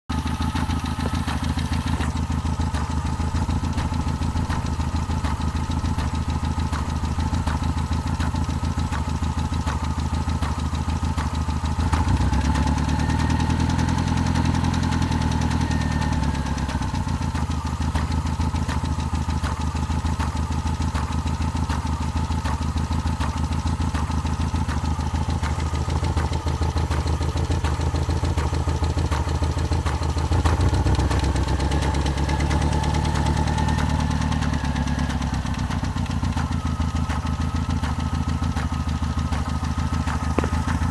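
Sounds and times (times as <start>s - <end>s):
car engine idling: 0.1s - 40.9s
engine revving: 0.1s - 40.9s
clanking from engine: 39.3s - 40.9s.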